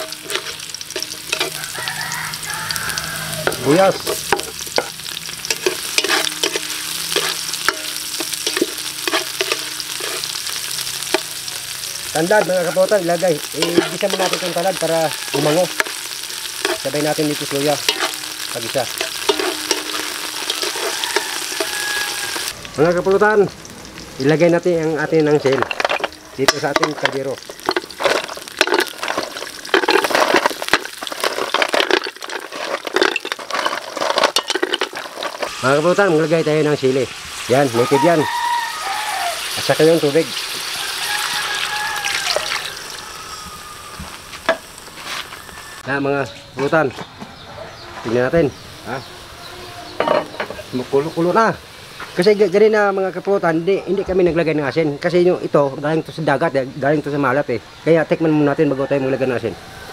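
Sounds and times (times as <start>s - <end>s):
spatula scraping and clacking on pot: 0.0s - 11.5s, 12.2s - 22.5s, 25.3s - 35.6s
aromatics sizzling in hot oil: 0.0s - 45.8s, 47.8s - 58.2s.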